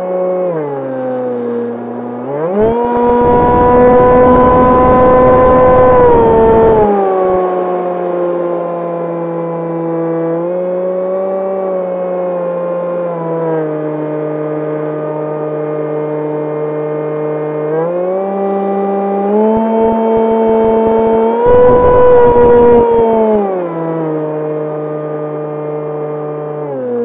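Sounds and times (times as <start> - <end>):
electric motor propeller whining: 0.0 - 27.0
wind buffeting microphone: 3.0 - 6.9, 20.6 - 23.0.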